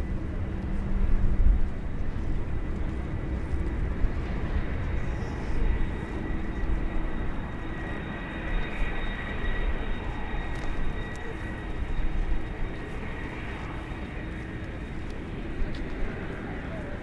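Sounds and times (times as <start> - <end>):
jet engines rumbling and whining: 0.0 - 17.0.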